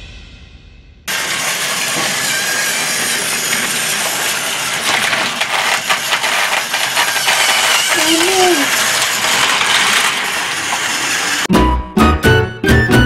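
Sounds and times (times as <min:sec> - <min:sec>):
toy train motors whirring: 0:01.1 - 0:11.5
wheels clicking over track joints: 0:01.1 - 0:11.5.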